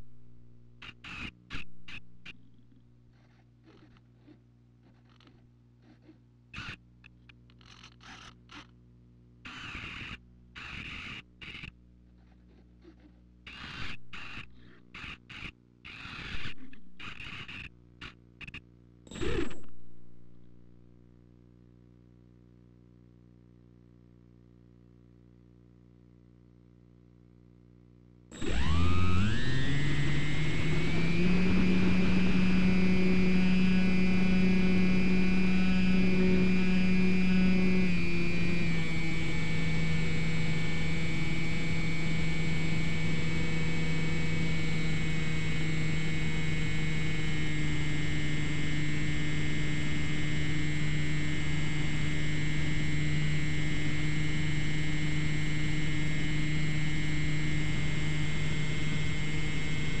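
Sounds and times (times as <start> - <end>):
model plane motor drone: 0.8 - 2.4, 9.5 - 11.7, 12.9 - 19.8, 28.3 - 60.0.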